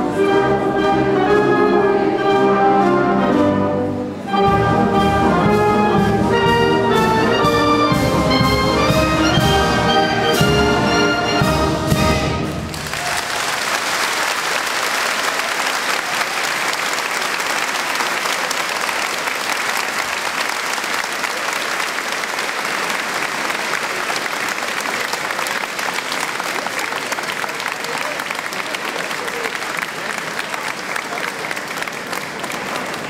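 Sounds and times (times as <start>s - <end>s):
crowd applauding: 12.6s - 33.0s.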